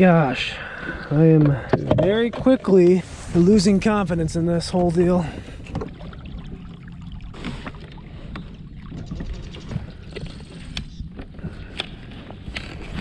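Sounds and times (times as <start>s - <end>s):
water lapping against hull: 0.0s - 13.0s
wind rumble on microphone: 1.8s - 7.2s.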